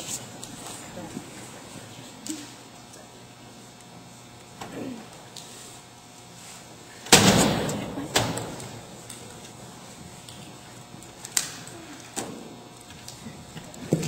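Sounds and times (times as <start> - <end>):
loud slam: 7.1 - 8.6.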